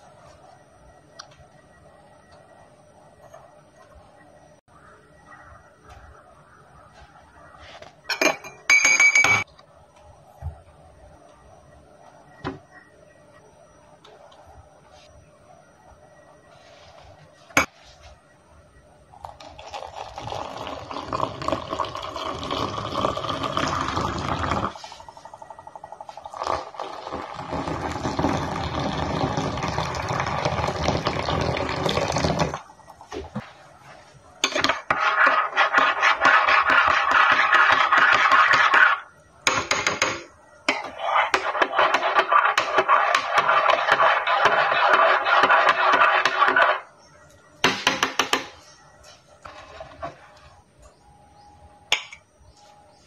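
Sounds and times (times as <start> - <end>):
water pouring into mug: 19.2 - 24.7.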